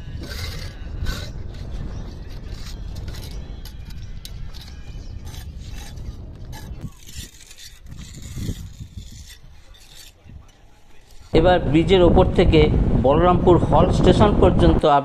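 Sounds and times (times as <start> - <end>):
trowels scraping mortar: 0.0 - 11.4
low rumble: 11.3 - 14.8.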